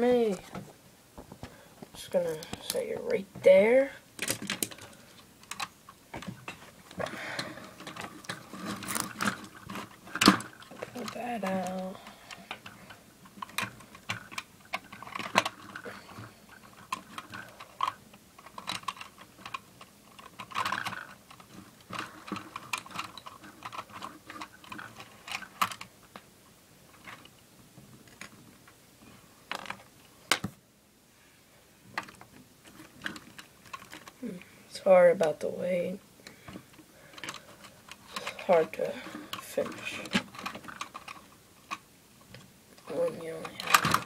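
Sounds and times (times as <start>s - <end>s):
plastic bricks clicking: 4.2s - 26.2s, 37.2s - 44.0s.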